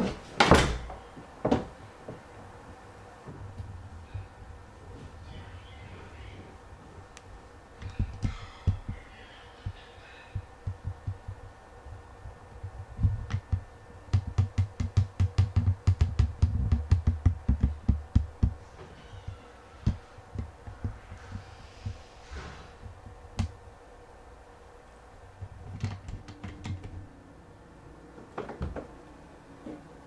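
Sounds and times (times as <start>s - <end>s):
dull thumps: 12.6s - 23.6s.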